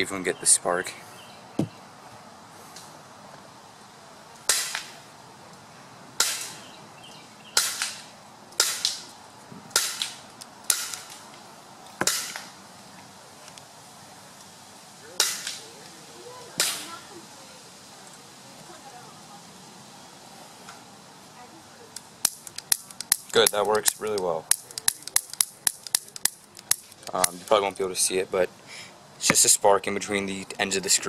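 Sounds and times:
piezo igniter clicking: 21.9s - 27.3s.

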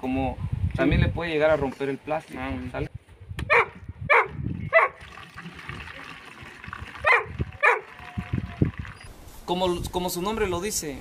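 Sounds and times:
dog barking: 3.5s - 5.0s, 7.0s - 7.9s
liquid pouring through funnel: 4.9s - 9.1s.

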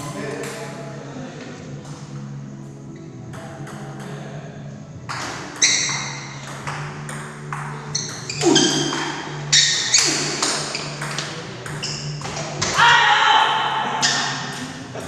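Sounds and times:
table tennis ball hits: 3.3s - 4.4s, 5.1s - 13.0s.

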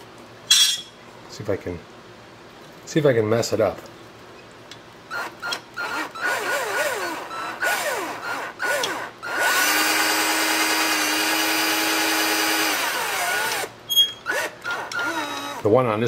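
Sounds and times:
cordless drill running: 5.1s - 15.7s.

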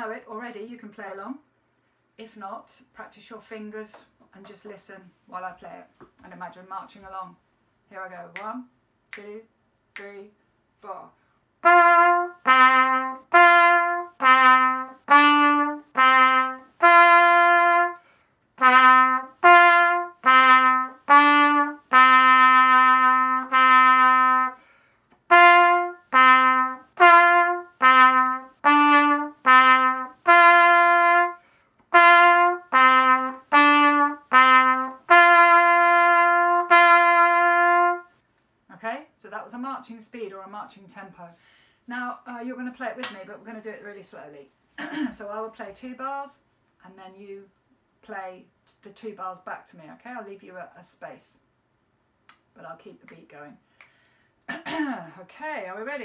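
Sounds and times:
trumpet playing slow tune: 11.6s - 24.6s, 25.3s - 38.2s.

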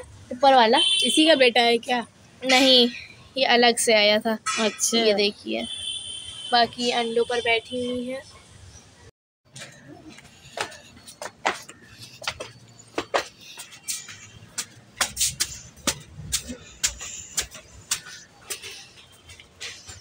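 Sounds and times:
footsteps on concrete stairs: 9.5s - 20.0s.

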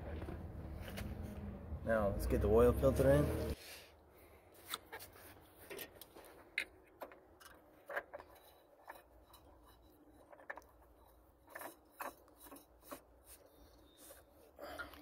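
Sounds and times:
metal clicks and scrapes: 4.6s - 14.2s.

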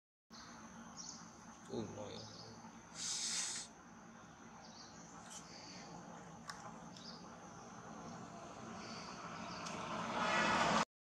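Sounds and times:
high insect drone: 0.4s - 10.8s
loud hiss: 2.9s - 3.8s.

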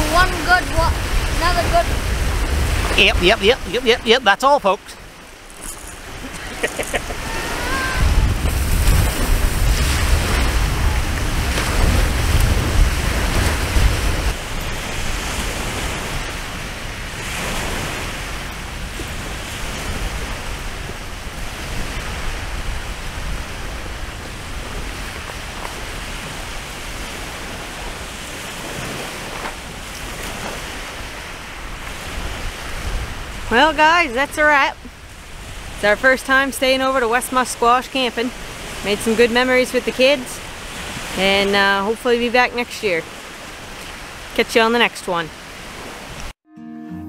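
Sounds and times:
wind buffeting microphone: 0.0s - 37.2s
waves breaking on shore: 0.0s - 46.4s.

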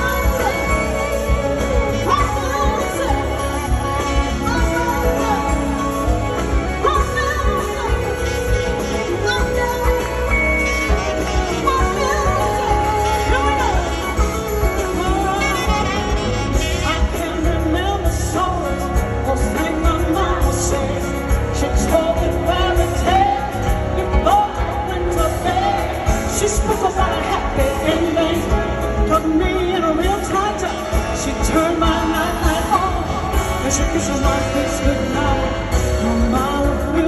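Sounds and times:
live band music: 0.0s - 37.0s
woman singing into microphone: 0.0s - 37.0s.

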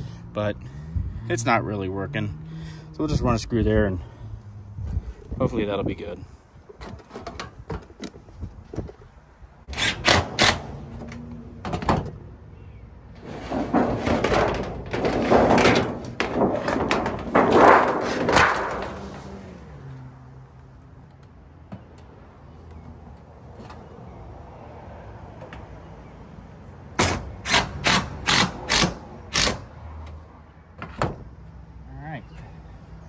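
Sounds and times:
tin sheet rumbling and scraping: 13.2s - 19.7s
sharp metal bangs: 13.3s - 19.4s.

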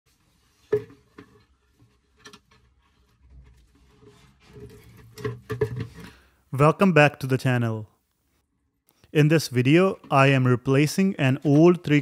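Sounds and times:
plastic bucket knocking: 0.6s - 1.5s, 4.6s - 6.2s.

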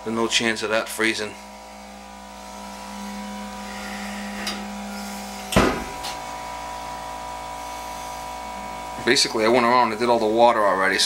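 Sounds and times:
air compressor humming: 0.0s - 11.0s
sharp knock: 5.5s - 6.0s.

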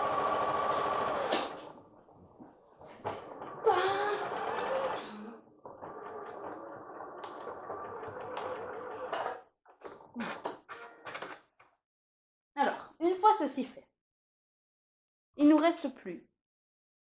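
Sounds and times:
sewing machine stitching: 0.0s - 2.0s, 3.0s - 10.6s.

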